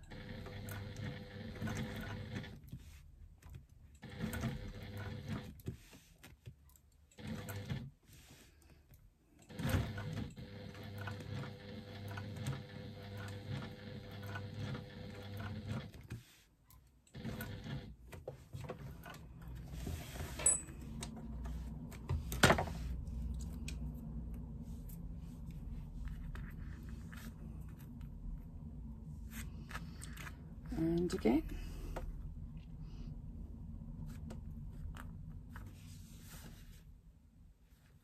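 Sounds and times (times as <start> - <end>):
sewing machine stitching: 0.0 - 6.1, 7.0 - 8.4, 9.4 - 16.3, 17.0 - 20.4.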